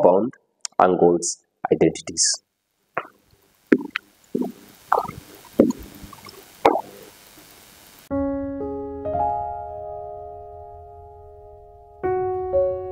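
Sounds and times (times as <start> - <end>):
piano chords: 8.1 - 12.9.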